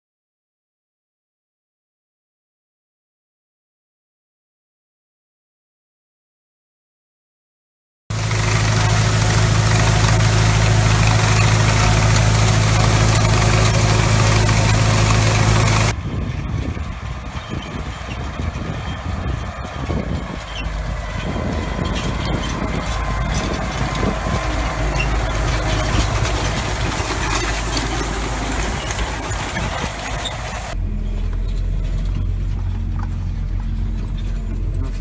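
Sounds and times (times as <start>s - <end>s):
tractor engine running: 8.1s - 35.0s.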